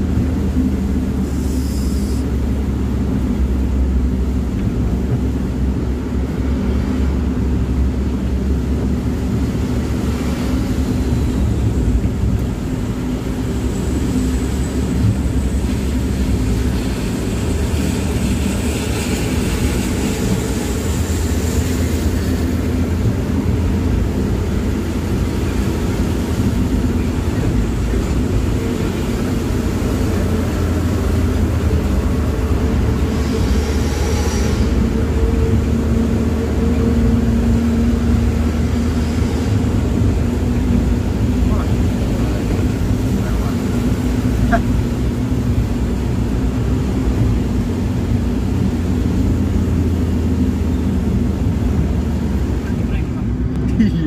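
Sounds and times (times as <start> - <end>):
vehicle engine and road noise: 0.0 - 54.0
rain and tyre spray hiss: 0.1 - 53.8.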